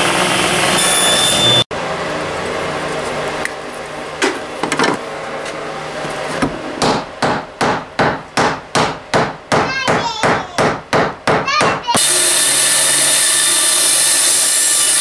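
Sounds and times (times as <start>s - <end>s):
wooden mallet striking wood: 6.8s - 11.8s.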